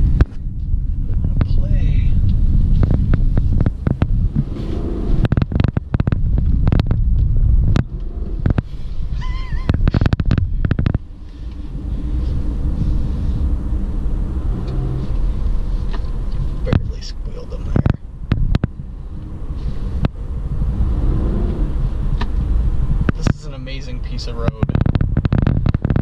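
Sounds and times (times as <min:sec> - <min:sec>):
car engine and tyres rumbling: 0:00.0 - 0:26.0
sharp clicks and knocks: 0:05.2 - 0:08.7, 0:09.7 - 0:11.6, 0:17.7 - 0:18.8, 0:24.4 - 0:26.0.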